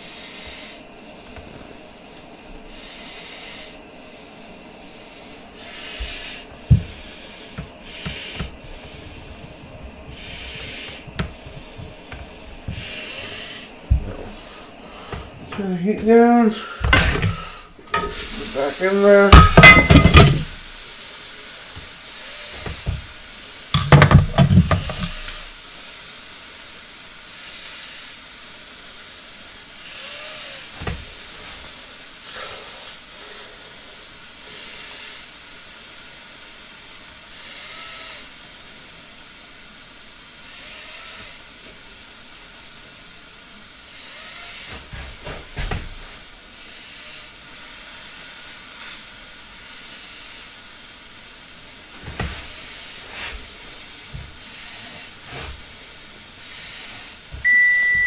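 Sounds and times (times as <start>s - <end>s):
steak sizzling in a pan: 17.3s - 30.0s, 44.8s - 58.0s.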